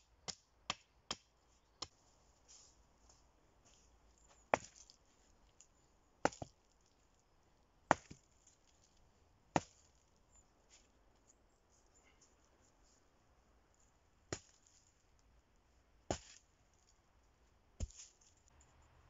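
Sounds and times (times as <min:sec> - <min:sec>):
axe chopping wood: 0:00.2 - 0:01.9, 0:04.5 - 0:04.9, 0:06.2 - 0:06.6, 0:07.9 - 0:08.2, 0:09.6 - 0:09.9, 0:14.3 - 0:14.7, 0:16.1 - 0:16.4.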